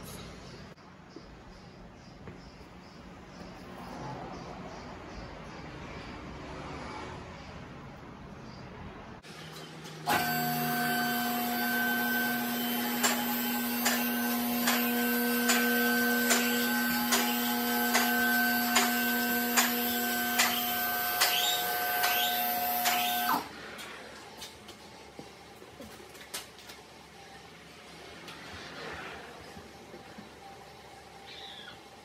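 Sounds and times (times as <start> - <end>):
small machine whining: 9.5 - 23.6.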